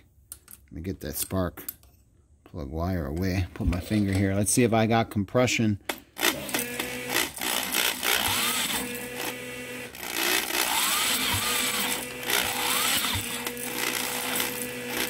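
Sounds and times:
engine being spun over whirring: 0:06.3 - 0:15.0.

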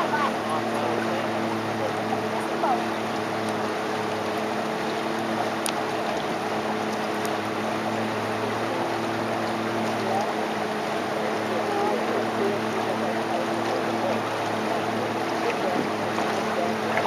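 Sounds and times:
boat motor humming: 0:00.0 - 0:17.0
water rushing: 0:00.0 - 0:17.0.

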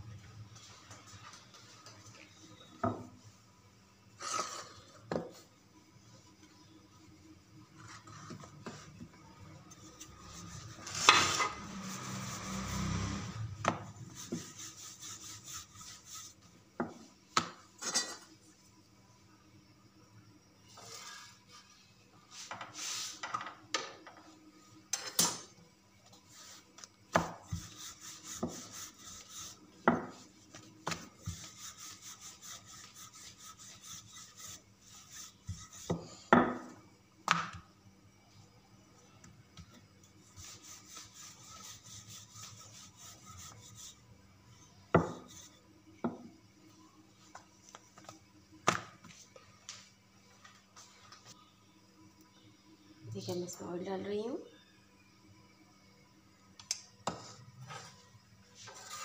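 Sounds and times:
faint steady hum: 0:00.0 - 0:59.0
metal spatula scraping griddle: 0:20.7 - 0:21.7, 0:58.6 - 0:59.0.

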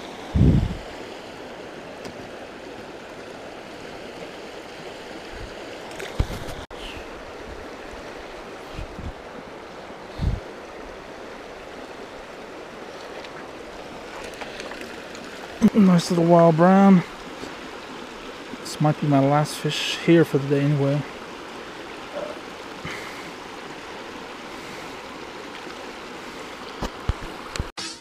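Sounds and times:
creek flowing over stones: 0:00.0 - 0:27.7.

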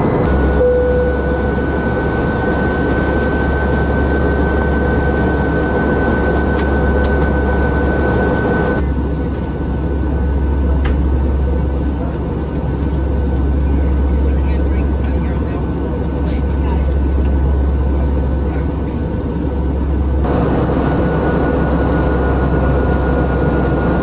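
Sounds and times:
aircraft engine and airflow rumble: 0:00.0 - 0:24.0
thin high tone: 0:00.3 - 0:01.8.

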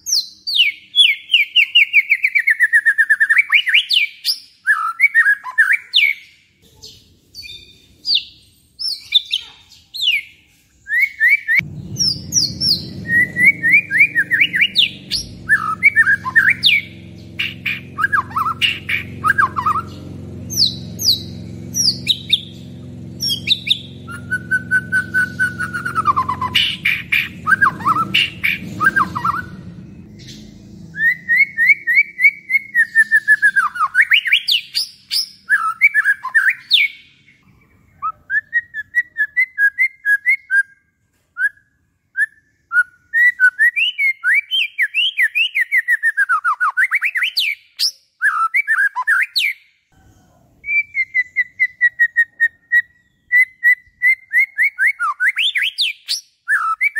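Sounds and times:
songbird whistling and chattering: 0:00.0 - 0:40.8, 0:42.2 - 0:49.6, 0:50.6 - 0:56.9
low steady rumble: 0:11.6 - 0:34.0.

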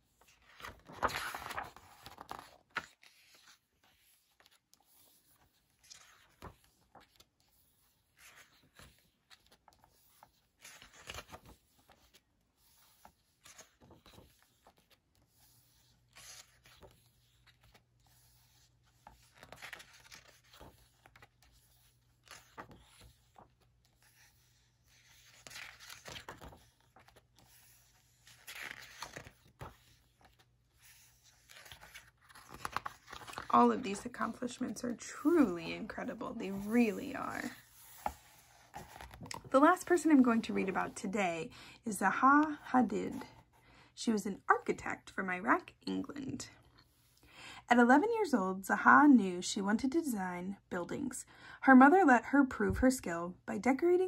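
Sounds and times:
book pages turning: 0:00.1 - 0:41.1.

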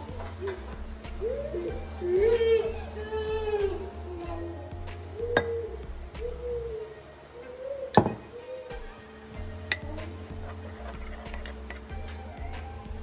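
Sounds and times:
background music: 0:00.0 - 0:13.0
metal spoon clinking on bowl: 0:09.7 - 0:10.0.

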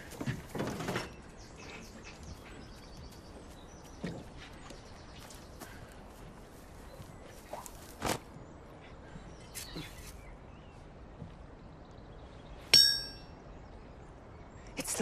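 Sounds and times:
hammer clanging on steel pin: 0:12.8 - 0:13.2.

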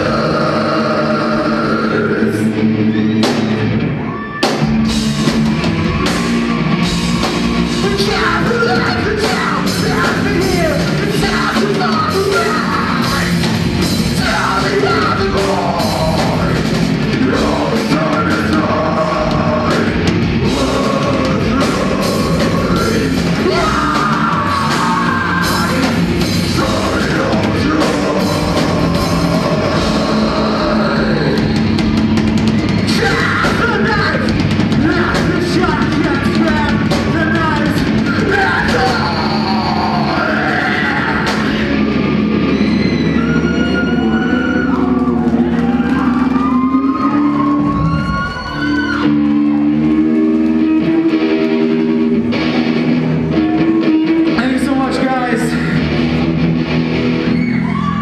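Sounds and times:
person singing: 0:00.0 - 0:03.0, 0:07.8 - 0:31.7, 0:32.9 - 0:41.9
live rock band playing: 0:00.0 - 0:58.0.

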